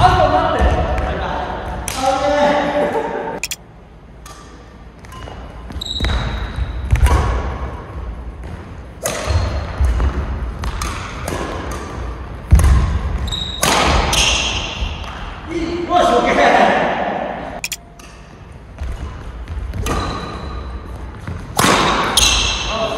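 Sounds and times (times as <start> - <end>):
racket hitting shuttlecock: 9.0 - 15.2, 21.3 - 22.7.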